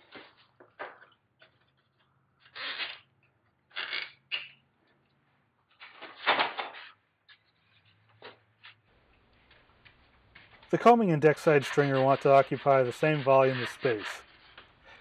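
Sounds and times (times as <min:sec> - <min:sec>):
wooden parts rubbing and rattling: 0:09.4 - 0:15.0.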